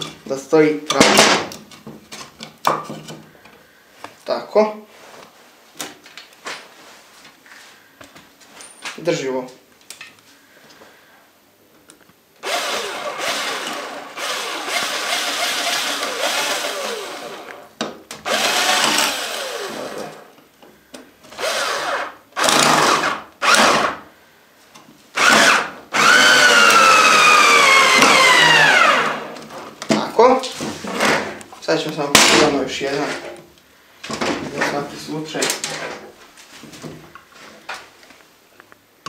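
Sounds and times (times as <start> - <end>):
cordless drill whining: 12.4 - 20.3, 21.3 - 24.0, 25.2 - 29.4.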